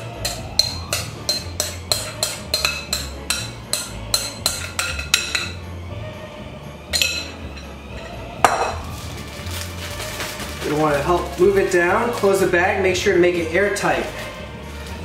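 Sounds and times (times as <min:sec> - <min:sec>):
metal spoon clinking glass bowl: 0:00.2 - 0:05.6, 0:06.9 - 0:08.8.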